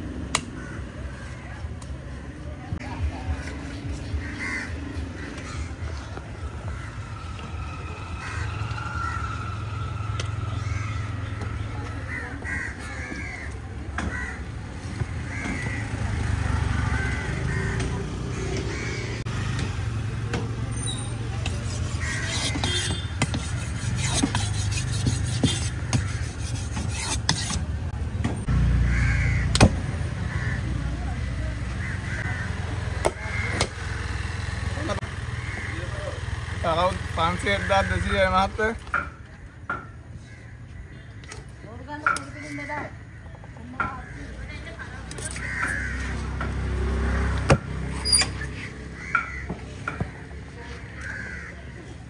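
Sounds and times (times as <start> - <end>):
crows cawing: 0.5 - 1.6, 4.0 - 7.3, 8.2 - 9.5, 10.5 - 19.2, 21.9 - 23.0, 28.8 - 29.6, 30.2 - 34.1, 35.0 - 36.2, 39.8 - 41.5, 42.1 - 47.4, 48.6 - 52.0.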